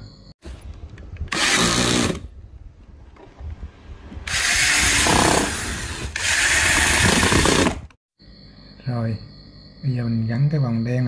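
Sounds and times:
electric screwdriver driving screws: 1.3s - 2.2s, 4.3s - 7.8s.

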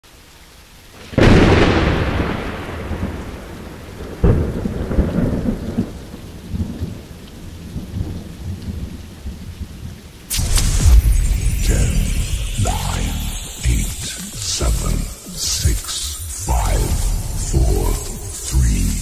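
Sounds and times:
steady rain: 0.0s - 19.0s
thunder cracking and rumbling: 1.1s - 7.0s, 10.3s - 19.0s
music: 10.3s - 19.0s.

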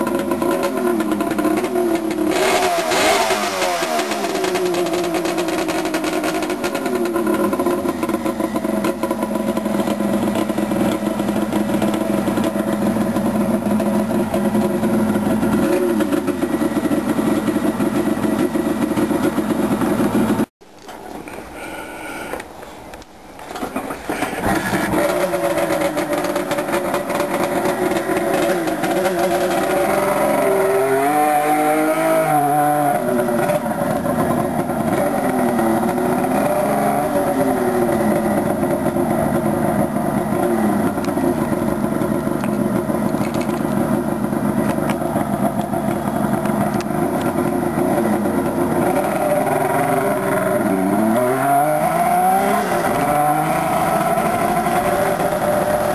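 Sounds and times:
motorcycle engine revving: 0.0s - 20.5s, 24.0s - 55.9s.

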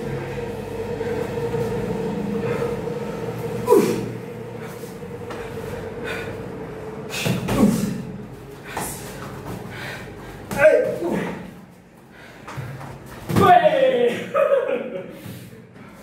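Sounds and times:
steady hum: 0.0s - 16.0s
shuffling footwork: 7.1s - 13.8s.

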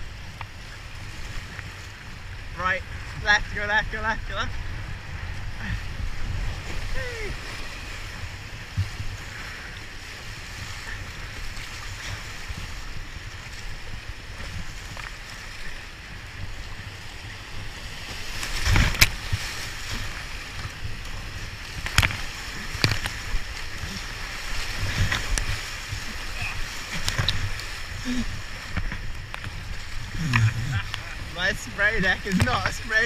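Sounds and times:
rapids rushing: 0.0s - 33.0s
wind on microphone: 0.0s - 33.0s
sharp water splashes: 17.5s - 33.0s.

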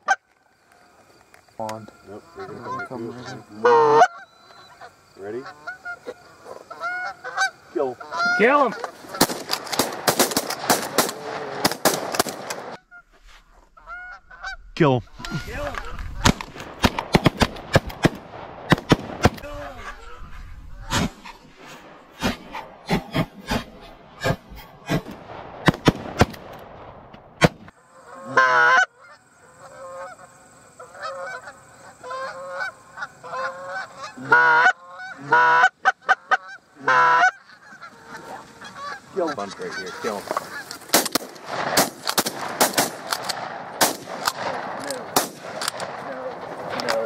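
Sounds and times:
goose honking: 1.8s - 9.8s, 12.5s - 16.3s, 19.4s - 21.6s, 27.7s - 41.0s.

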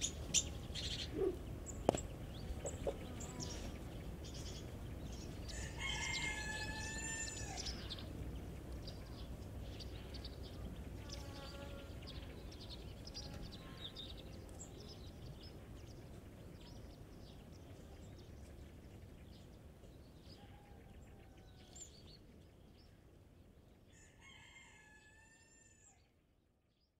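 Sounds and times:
chickens calling and chirping: 0.0s - 10.4s
roosters crowing: 5.4s - 8.1s, 23.9s - 26.0s.

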